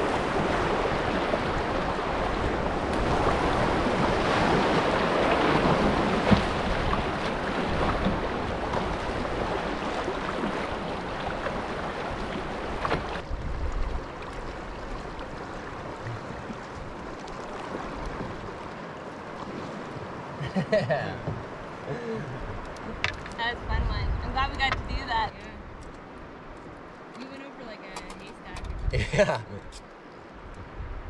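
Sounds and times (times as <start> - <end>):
wind buffeting microphone: 0.0 - 17.1, 22.3 - 29.3, 30.3 - 31.0
rushing river rapid: 0.0 - 23.5.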